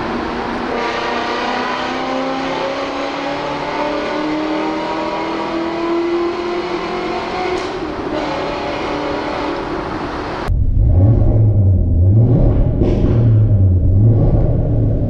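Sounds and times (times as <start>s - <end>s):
car engine revving from inside: 10.8s - 15.0s.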